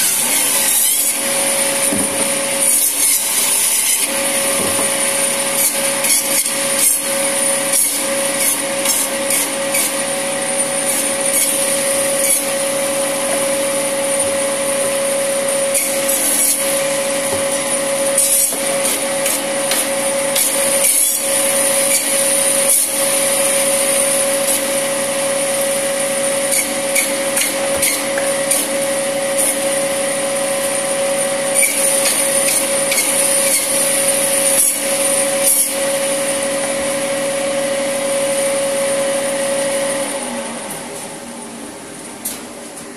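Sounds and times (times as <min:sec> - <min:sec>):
blade cutting through bone: 0:00.0 - 0:01.8, 0:02.6 - 0:04.4, 0:05.3 - 0:10.1, 0:10.8 - 0:12.7, 0:15.6 - 0:17.0, 0:18.1 - 0:23.1, 0:26.4 - 0:28.7, 0:31.6 - 0:34.8
band saw whine: 0:00.0 - 0:41.6.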